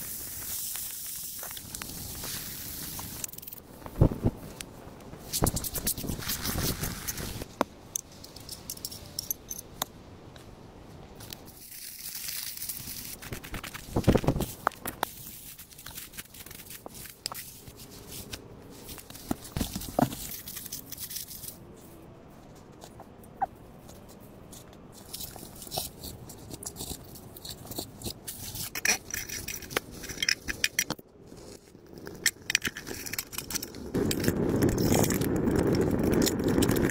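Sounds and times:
small knocks and rustles: 12.6 - 34.2.

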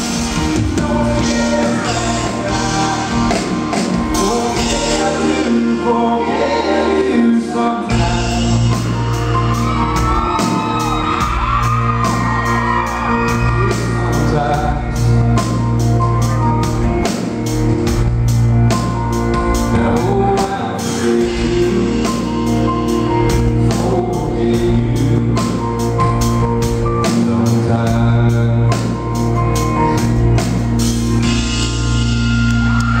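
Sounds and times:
steady drum beat: 0.0 - 5.8, 7.9 - 33.0
country band playing: 0.0 - 33.0
man singing: 0.4 - 9.0, 13.3 - 15.6, 19.5 - 29.4.

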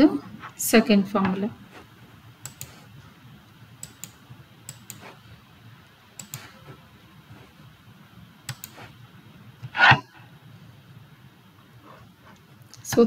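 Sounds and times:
computer mouse clicking: 2.4 - 2.9, 3.8 - 5.2, 6.2 - 6.6, 8.4 - 8.9.

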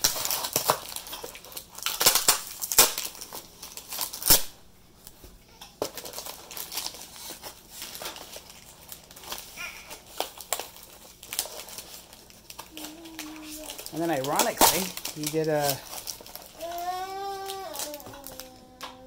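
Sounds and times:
package being torn open: 0.0 - 4.5, 5.8 - 19.0.

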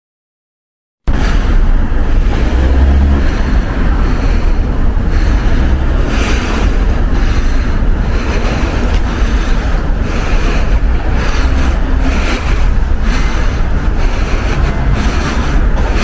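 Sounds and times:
car road noise: 1.1 - 16.0
wind buffeting microphone: 1.1 - 16.0.

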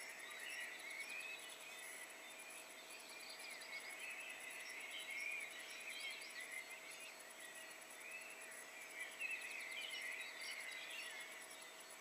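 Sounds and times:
songbirds singing: 0.0 - 12.0.

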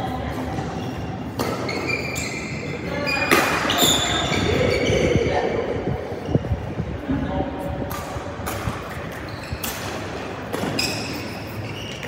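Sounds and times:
sneakers squeaking on court: 0.4 - 6.9, 7.9 - 12.0.

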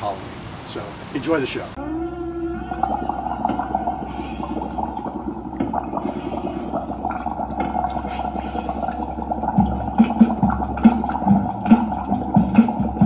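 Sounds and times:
low amp hum: 0.0 - 13.0
electric guitar warbling notes: 1.8 - 6.0.

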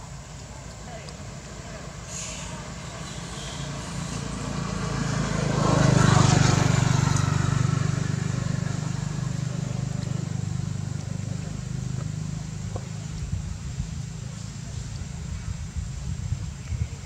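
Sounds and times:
vehicle engine droning past: 2.2 - 14.7.

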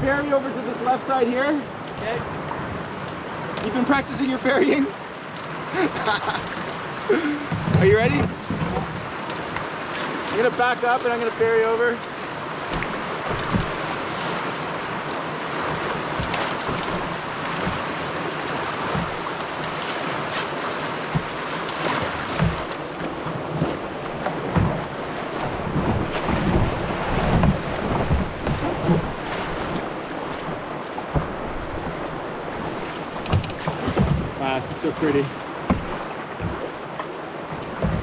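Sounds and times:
river rapids rushing: 0.0 - 38.0
low thumps: 7.5 - 9.0, 21.1 - 21.4, 22.2 - 34.7, 35.6 - 36.8.

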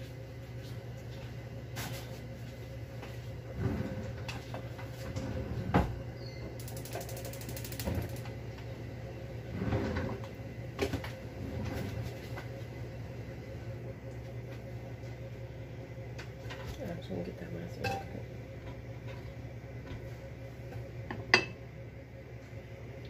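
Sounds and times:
steady low hum: 0.0 - 23.0
rapid buzzy rattle: 6.6 - 8.3.

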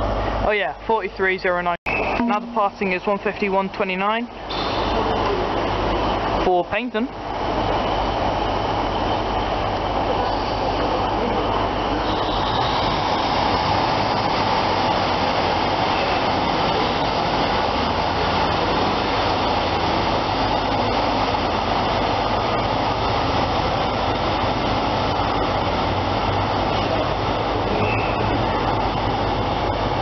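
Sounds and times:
diesel trains running: 0.0 - 30.0
low hum: 1.9 - 3.0.

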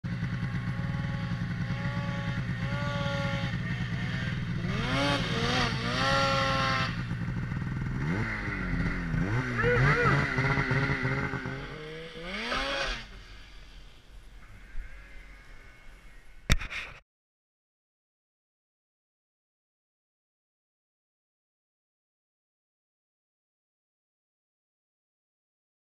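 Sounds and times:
snowmobile engine revving: 0.1 - 15.9.

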